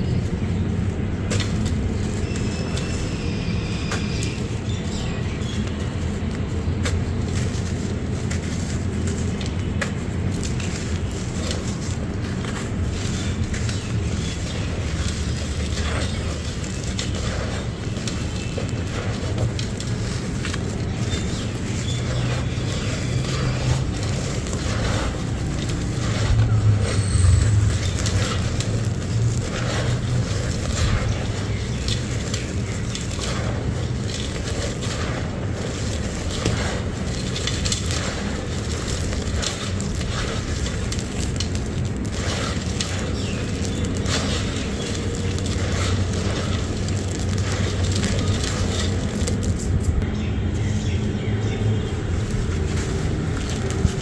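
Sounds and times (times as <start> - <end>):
hands crushing gritty crumbles: 0.0 - 50.0, 52.0 - 54.0
lumps cracking: 0.0 - 50.0
steady low rumble: 0.0 - 54.0
trickle of falling grains: 10.2 - 49.7.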